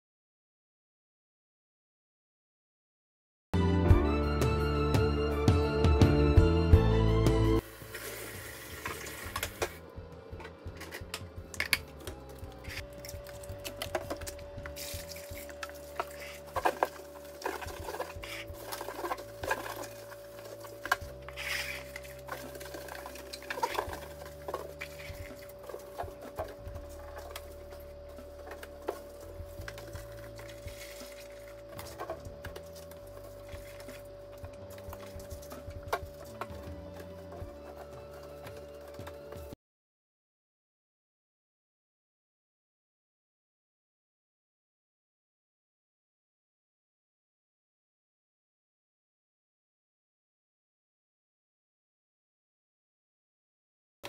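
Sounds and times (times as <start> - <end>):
steady hum: 7.6 - 39.6
packages clicking and knocking: 10.7 - 39.5.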